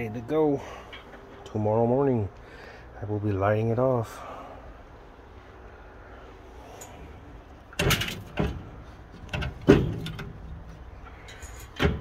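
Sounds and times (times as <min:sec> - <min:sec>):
sharp metal knocks: 0:07.8 - 0:10.4
metal clanks and scrapes: 0:07.8 - 0:12.0.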